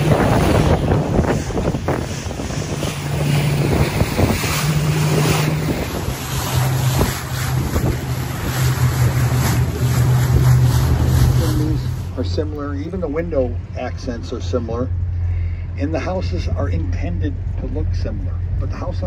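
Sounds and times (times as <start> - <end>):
wind buffeting microphone: 0.0 - 13.8
boat motor running: 0.0 - 19.0
water noise: 0.0 - 19.0.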